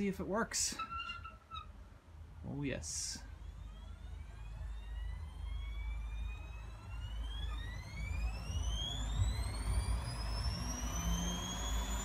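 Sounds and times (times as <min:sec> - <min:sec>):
washing machine drum spinning up: 0:06.2 - 0:12.0.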